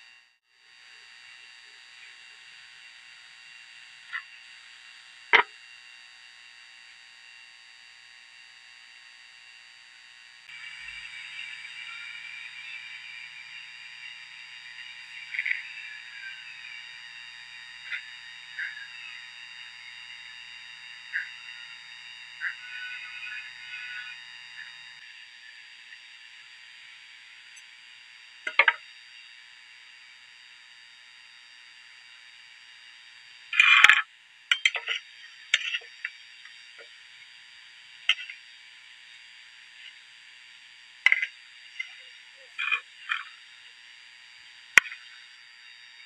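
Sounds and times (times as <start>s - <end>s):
frogs croaking: 10.5s - 27.7s, 28.4s - 28.8s, 33.5s - 37.4s, 38.0s - 38.5s, 41.0s - 43.8s, 44.6s - 46.0s.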